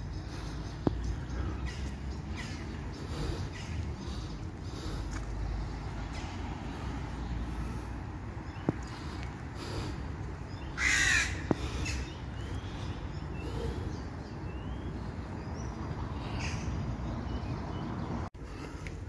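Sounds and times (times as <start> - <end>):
small birds chirping: 0.0 - 19.0
crow cawing: 10.7 - 12.2.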